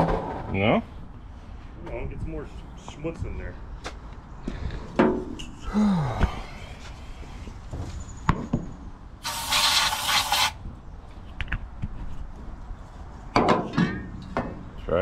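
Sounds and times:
aerosol spray can hiss: 9.2s - 10.6s.

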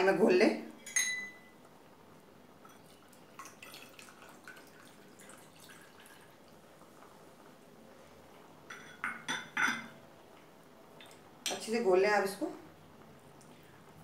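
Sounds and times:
water dripping and splashing: 2.6s - 7.0s, 11.0s - 11.3s.

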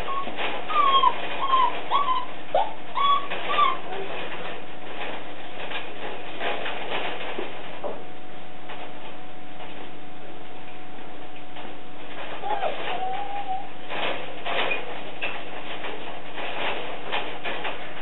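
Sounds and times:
dog whimpering: 0.0s - 4.2s, 12.4s - 13.8s.

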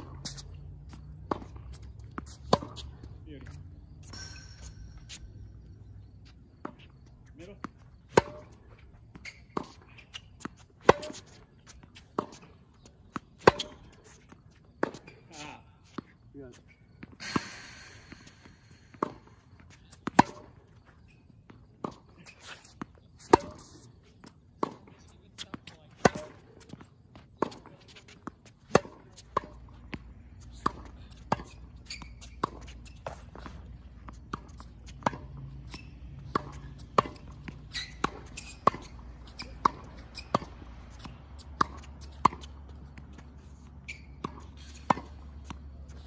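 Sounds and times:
tennis ball struck by rackets: 0.0s - 3.0s, 3.8s - 8.6s, 9.3s - 11.4s, 13.1s - 14.0s, 17.2s - 20.6s, 21.8s - 23.8s, 25.6s - 26.8s, 27.4s - 43.1s, 43.9s - 45.7s
sneakers shuffling: 0.1s - 46.0s
ball bouncing on court: 0.2s - 5.2s, 17.2s - 19.3s, 25.4s - 43.2s, 43.9s - 45.6s.

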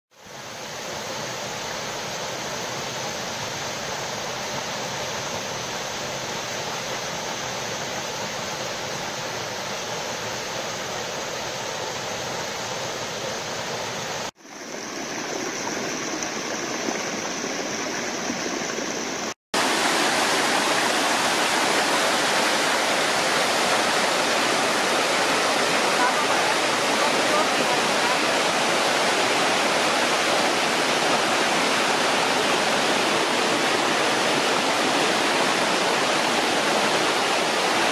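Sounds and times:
small waterfall rushing: 0.1s - 37.9s
water tumbling over cascade: 13.2s - 37.9s.

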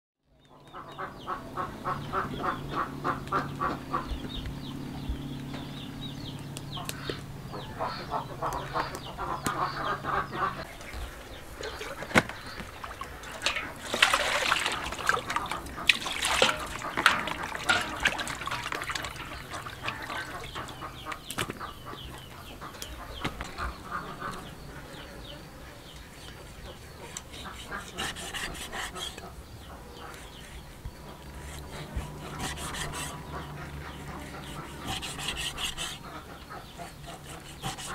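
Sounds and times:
poultry calling: 0.5s - 37.9s
low steady hum: 1.3s - 36.8s
water splashing in plastic basin: 11.6s - 21.6s.

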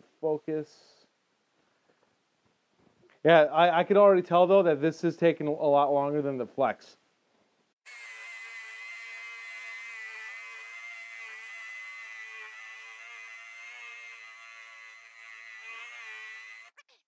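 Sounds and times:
hammer drill buzzing: 7.9s - 16.9s.

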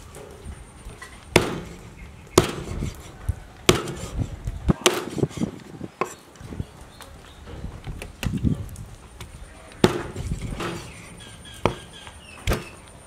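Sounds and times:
cleaver chopping on wooden board: 1.4s - 1.8s, 2.4s - 2.9s, 3.7s - 4.1s, 4.8s - 5.2s, 9.8s - 10.9s.

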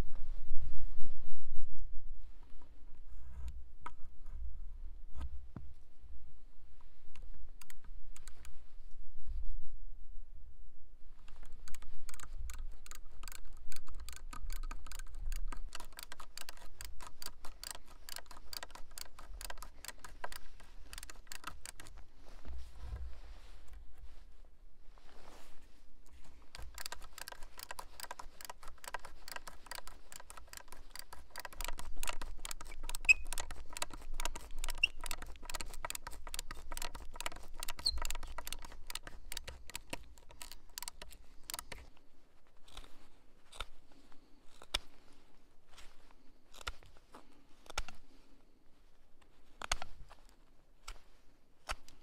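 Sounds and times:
scattered clicks: 7.1s - 8.6s, 11.3s - 22.5s, 26.2s - 42.0s
auger bit boring into wood: 26.5s - 41.8s.

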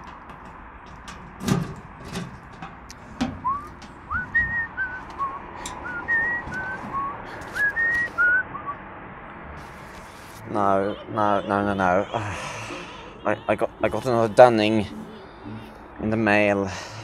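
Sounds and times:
metal mailbox knocks and clatters: 0.0s - 4.6s
man whistling a tune: 3.4s - 8.8s
letters being handled: 9.6s - 10.5s.

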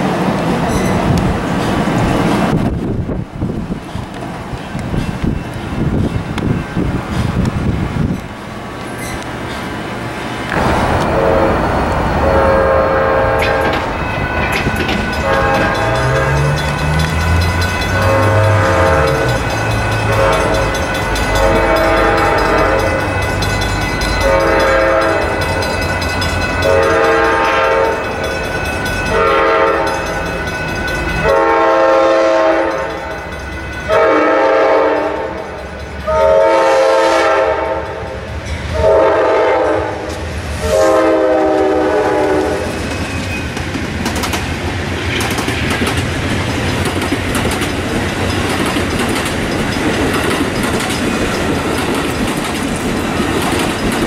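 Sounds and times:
train wheels clattering on rails: 0.0s - 54.0s
train horn chord blasts: 10.5s - 23.3s, 24.0s - 28.2s, 29.0s - 30.1s, 31.2s - 33.2s, 33.8s - 35.5s, 36.1s - 42.7s.

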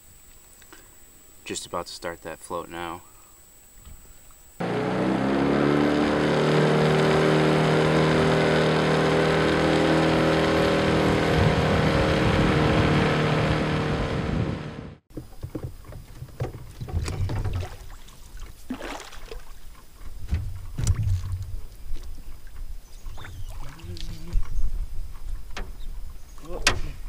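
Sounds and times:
outboard motor running: 4.6s - 26.7s
water splashes: 16.5s - 19.8s, 22.5s - 24.5s.

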